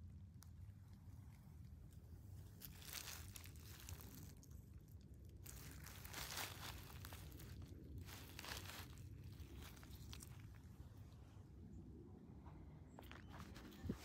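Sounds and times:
rustling scrapes in dry compost: 1.3s - 11.2s.

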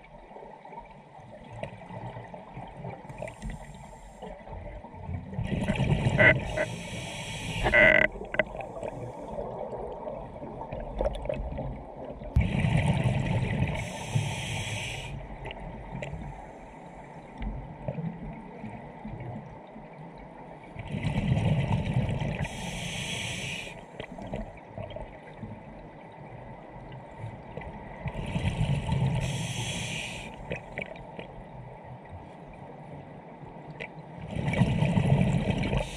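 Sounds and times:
exhaled bubbles rushing underwater: 0.0s - 16.4s, 20.8s - 26.2s, 34.2s - 35.9s
diver breathing through regulator: 6.1s - 9.4s, 13.7s - 15.2s, 22.4s - 24.0s, 28.2s - 30.4s.

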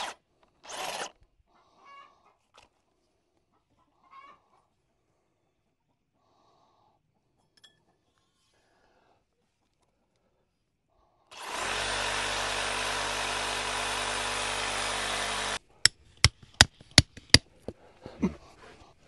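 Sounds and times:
reciprocating saw cutting metal: 0.0s - 1.2s, 11.3s - 15.6s.

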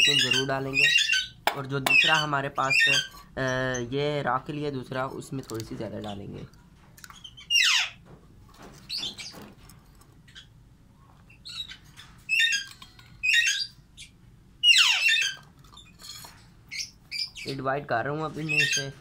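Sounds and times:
parrot chirping: 0.0s - 4.0s, 7.1s - 8.0s, 10.2s - 17.6s, 18.4s - 19.0s
parrot squawks: 7.4s - 8.0s, 11.4s - 15.4s.

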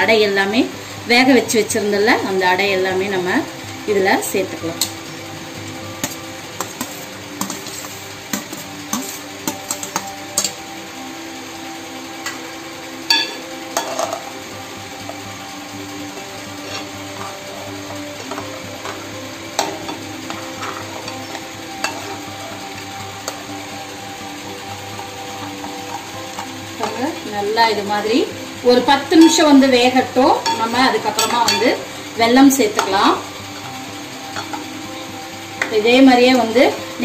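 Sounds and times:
steady background hum: 0.0s - 37.0s
spoon scraping and clinking on pot: 6.0s - 10.6s, 16.6s - 17.3s, 19.6s - 22.2s.

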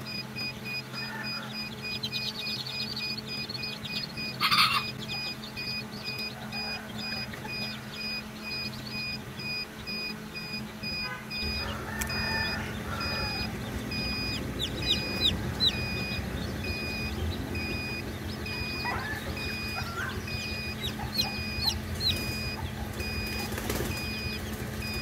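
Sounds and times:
chicks peeping: 0.0s - 25.0s
low hum: 0.0s - 25.0s
short electronic beeps: 0.0s - 25.0s.

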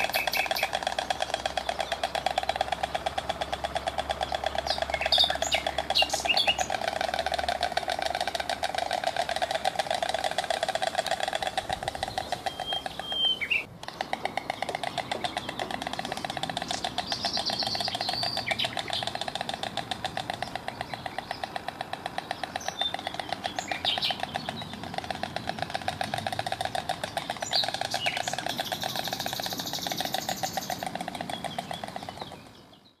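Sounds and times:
stork bill clattering: 0.0s - 32.6s
small birds chirping: 0.0s - 33.0s.

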